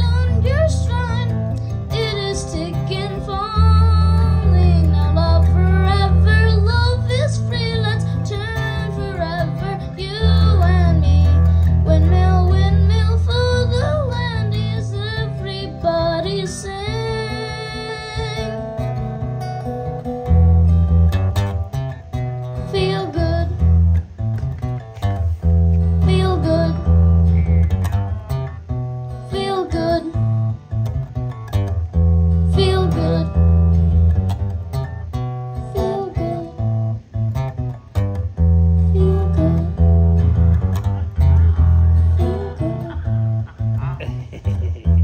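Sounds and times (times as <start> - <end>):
person singing: 0.0 - 18.7, 40.9 - 43.2
acoustic guitar strumming: 0.0 - 45.0.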